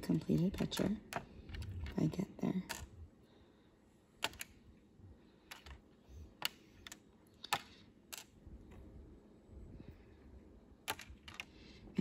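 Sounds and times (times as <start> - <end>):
plastic beads clicking on board: 2.7 - 2.9, 4.2 - 4.6, 5.5 - 5.8, 6.4 - 8.3, 10.8 - 11.6.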